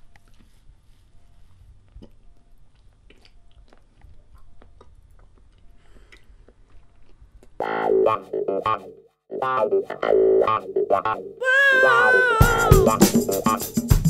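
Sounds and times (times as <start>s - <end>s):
person chewing and biting: 1.9s - 7.6s
loud electric guitar riff: 11.4s - 13.2s.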